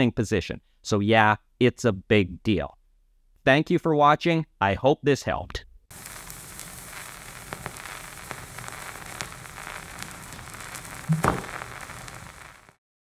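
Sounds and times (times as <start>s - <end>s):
vinyl crackle and pops: 5.9s - 12.8s
thump: 11.1s - 11.6s.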